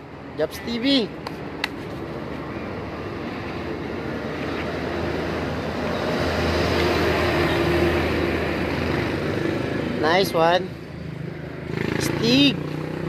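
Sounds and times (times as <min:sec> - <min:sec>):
road noise: 0:00.0 - 0:13.0
vehicle engine approaching: 0:04.1 - 0:13.0.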